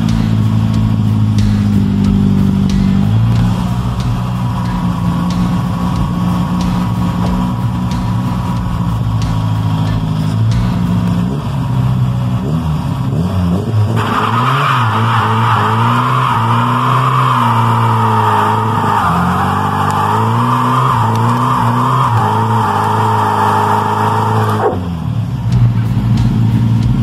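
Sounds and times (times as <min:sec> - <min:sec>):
car engine revving: 0:00.0 - 0:27.0
tyre squealing: 0:13.8 - 0:24.8.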